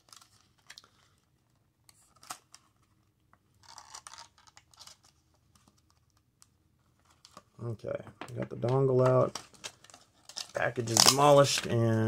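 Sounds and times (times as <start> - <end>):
plastic packaging crinkling: 3.6 - 6.2, 8.2 - 12.0.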